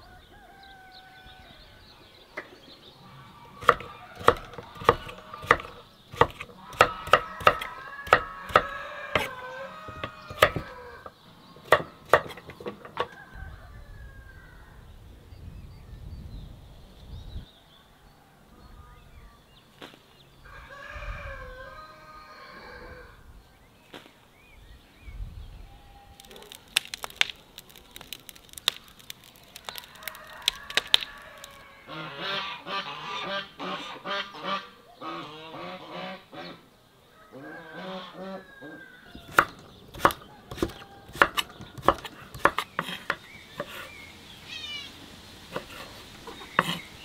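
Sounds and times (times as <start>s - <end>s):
knife chopping on wooden board: 3.6s - 10.8s, 11.6s - 13.0s, 39.2s - 43.9s, 45.5s - 45.9s, 46.5s - 46.8s.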